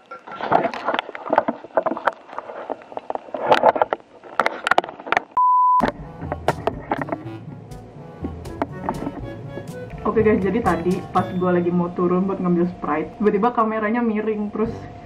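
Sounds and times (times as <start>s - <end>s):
censor bleep: 5.4s - 5.9s
background music: 5.8s - 12.7s.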